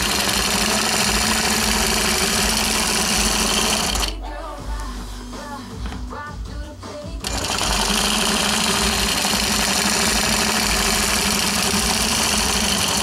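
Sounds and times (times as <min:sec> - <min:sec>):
quilting machine stitching: 0:00.0 - 0:04.2, 0:07.2 - 0:13.0.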